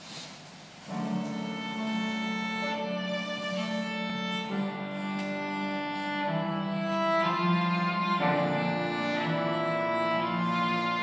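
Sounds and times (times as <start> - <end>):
strings playing held chords: 0.9 - 11.0.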